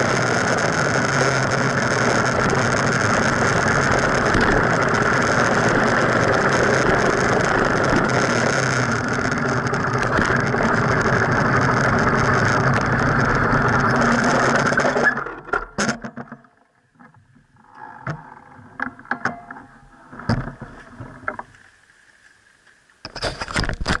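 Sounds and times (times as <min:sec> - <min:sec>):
bicycle tyre and wind noise: 0:00.0 - 0:15.4.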